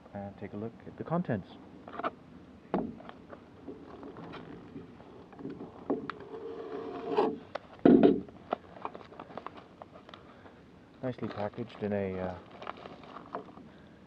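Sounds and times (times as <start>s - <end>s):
paper mailer tearing and crinkling: 11.2s - 13.4s.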